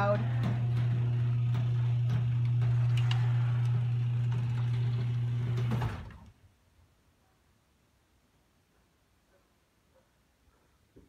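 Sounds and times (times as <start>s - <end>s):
garage door opener motor hum: 0.0s - 6.4s.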